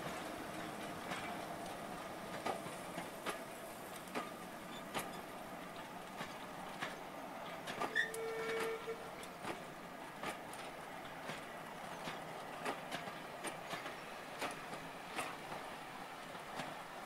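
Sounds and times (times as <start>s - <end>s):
train wheels clicking over rail joints: 0.0s - 17.0s
wheel squeal: 7.8s - 9.1s.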